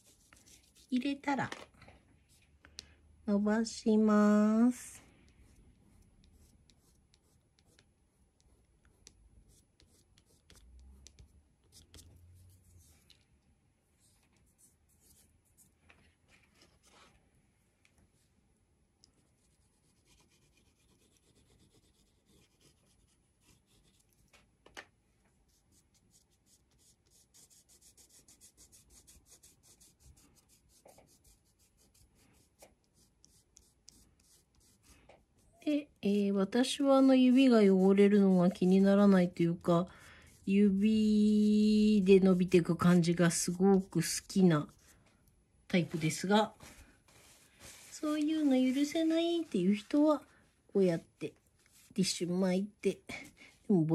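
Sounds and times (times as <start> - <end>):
crayon rubbing on paper: 0.0 - 1.0, 9.0 - 13.0, 19.3 - 24.0, 25.5 - 34.9, 36.4 - 40.9.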